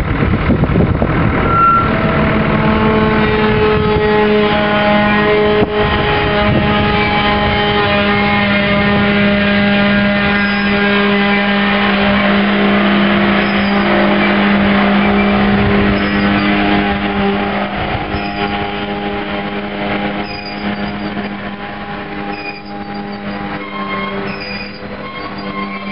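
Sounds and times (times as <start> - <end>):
freight train droning hum: 0.0 - 25.9
wheel-on-rail rumble: 0.0 - 25.9
high-pitched wheel squeals: 1.3 - 25.9.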